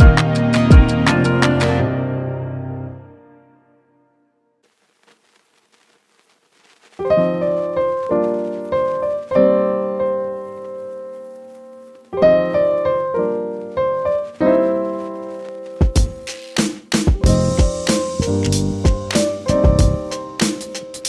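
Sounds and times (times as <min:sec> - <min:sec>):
piano chords ringing: 0:07.0 - 0:16.3, 0:17.2 - 0:21.0.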